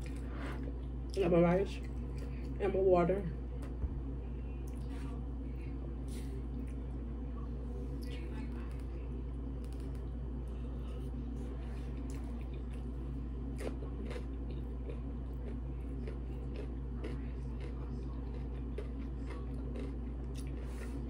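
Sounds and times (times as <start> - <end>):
chewing and wet mouth sounds: 0.0 - 1.2, 1.8 - 2.6, 4.5 - 5.2, 6.1 - 7.0, 9.6 - 21.0
steady low hum: 0.0 - 21.0.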